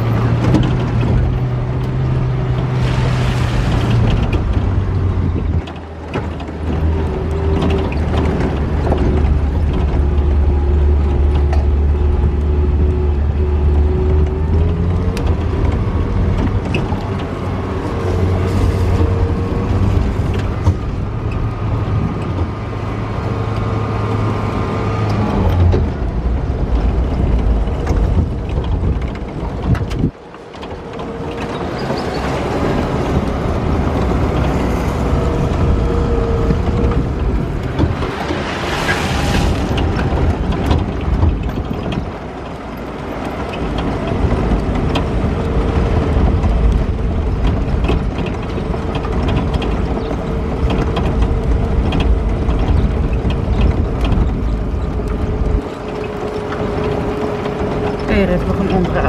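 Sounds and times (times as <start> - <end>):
vehicle body rattling: 0.0 - 59.0
vehicle engine whine: 0.0 - 59.0.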